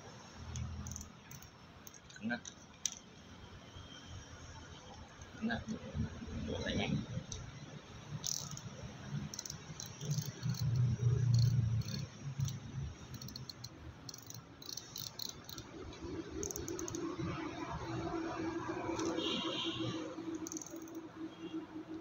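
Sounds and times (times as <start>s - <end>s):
fishing reel gears ticking: 0.5s - 2.1s, 8.2s - 17.3s, 18.9s - 19.3s, 20.3s - 21.0s.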